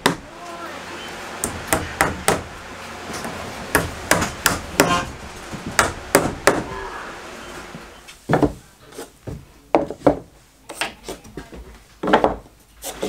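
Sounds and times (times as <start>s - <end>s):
hammer striking staples into wood: 0.0s - 0.2s, 1.4s - 2.5s, 3.7s - 5.0s, 5.7s - 6.7s.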